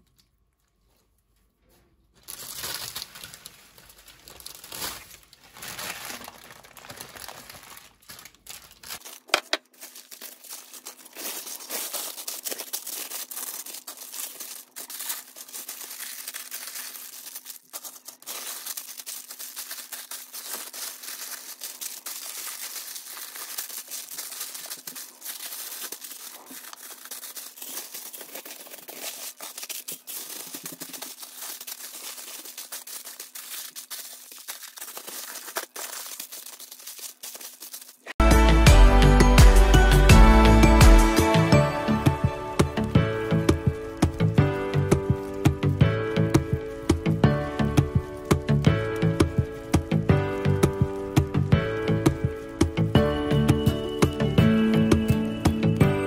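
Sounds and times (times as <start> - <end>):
paper and foil crinkling: 0.0 - 38.2, 41.1 - 56.0.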